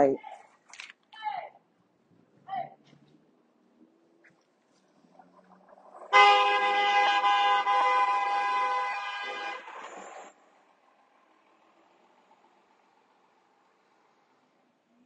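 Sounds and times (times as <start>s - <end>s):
vehicle horn blast: 6.1s - 9.9s.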